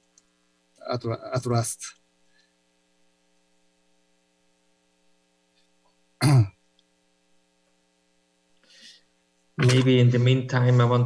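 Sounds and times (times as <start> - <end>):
faint electrical hum: 0.0 - 11.0
person clearing throat: 6.2 - 6.6.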